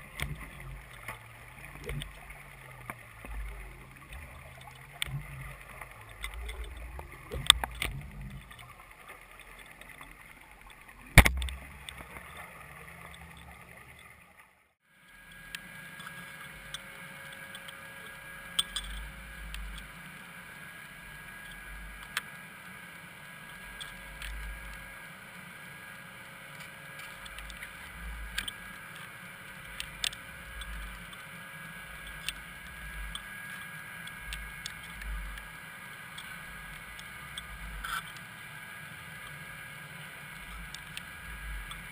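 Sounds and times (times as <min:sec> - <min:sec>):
scattered clicks: 0:00.0 - 0:14.2, 0:15.3 - 0:20.1, 0:21.3 - 0:22.8, 0:23.4 - 0:24.9, 0:26.5 - 0:38.5, 0:39.1 - 0:41.9.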